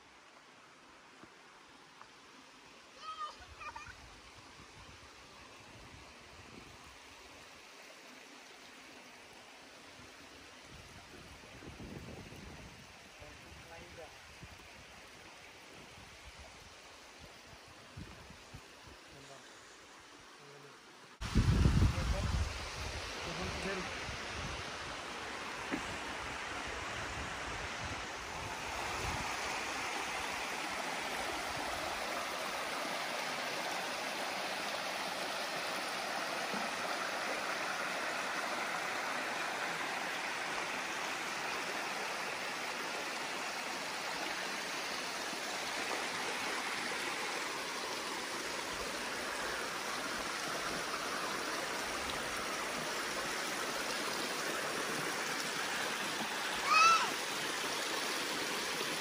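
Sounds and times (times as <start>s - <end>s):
creek running water: 0.0s - 59.0s
waterfall rushing: 2.7s - 4.6s, 19.0s - 59.0s.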